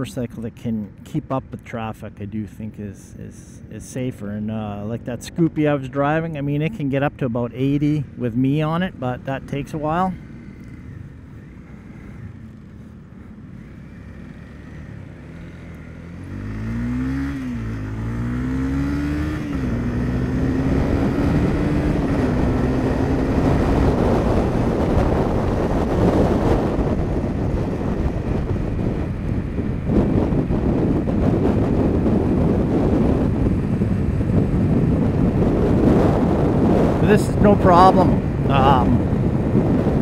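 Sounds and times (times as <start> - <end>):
motorcycle engine accelerating: 4.4 - 40.0
wind noise on microphone: 16.4 - 40.0.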